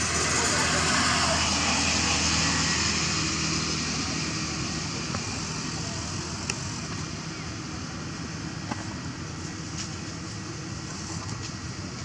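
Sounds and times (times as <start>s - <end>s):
rushing noise: 0.0s - 5.6s.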